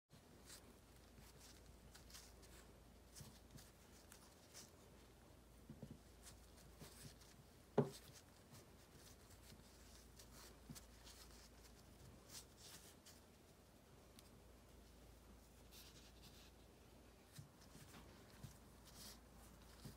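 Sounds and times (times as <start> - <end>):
soft rustling and rubbing: 0.1 - 19.9
soft knock: 7.8 - 8.0.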